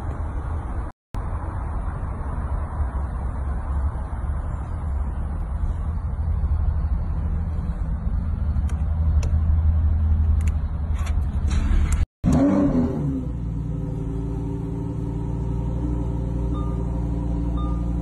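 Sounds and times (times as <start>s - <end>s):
engine rev blip: 16.0s - 18.0s.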